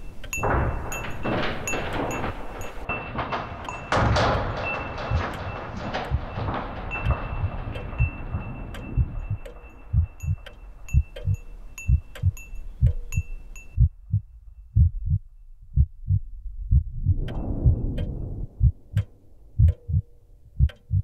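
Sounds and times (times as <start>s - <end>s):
high ticking clicks: 0.0s - 21.0s
heartbeat thumps: 9.0s - 21.0s.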